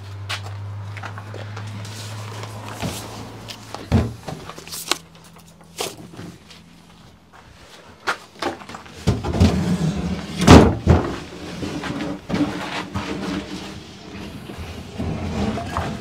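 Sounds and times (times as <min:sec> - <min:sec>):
wood scraping on wood: 0:09.0 - 0:16.0.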